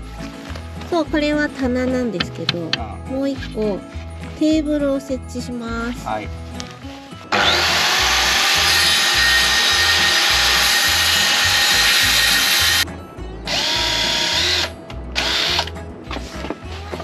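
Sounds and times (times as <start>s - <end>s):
soft background music beat: 0.0s - 17.0s
power saw cutting wood: 7.3s - 12.8s, 13.5s - 15.7s.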